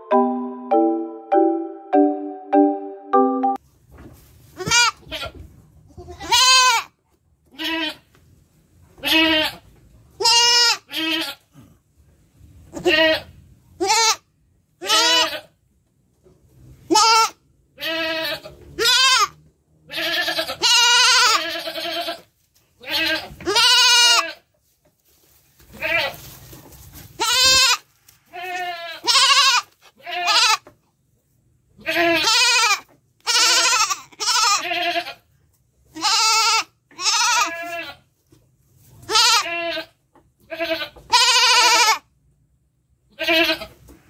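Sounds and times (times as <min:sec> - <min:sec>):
goat kid bleating: 0:04.6 - 0:08.2, 0:09.0 - 0:11.7, 0:12.7 - 0:15.6, 0:16.9 - 0:24.5, 0:25.7 - 0:26.3, 0:27.2 - 0:30.8, 0:31.8 - 0:38.1, 0:39.0 - 0:42.1, 0:43.0 - 0:43.9.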